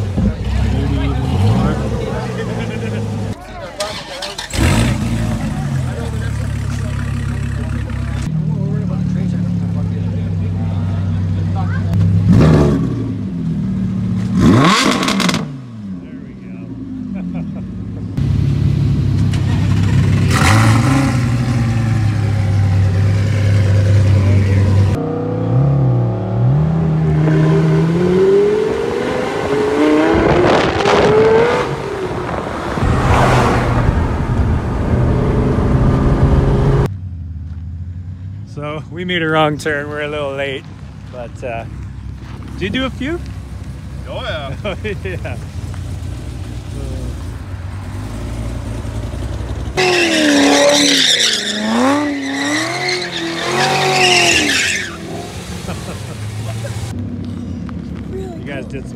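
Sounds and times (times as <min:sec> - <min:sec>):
sports car engines accelerating: 0:00.0 - 0:58.9
car passing with exhaust blast: 0:27.6 - 0:36.9
tyres squealing: 0:49.8 - 0:55.6.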